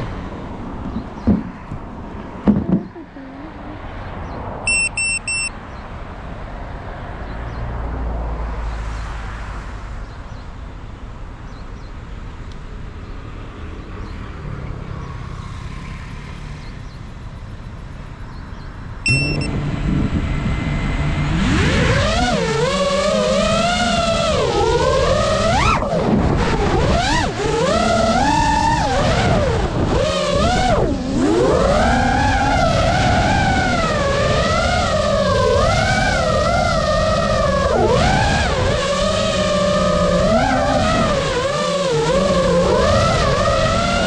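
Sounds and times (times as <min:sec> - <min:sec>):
road traffic passing: 0:00.0 - 0:44.0
high electronic beeps: 0:04.7 - 0:05.5, 0:19.0 - 0:19.5
drone motors humming: 0:19.1 - 0:44.0.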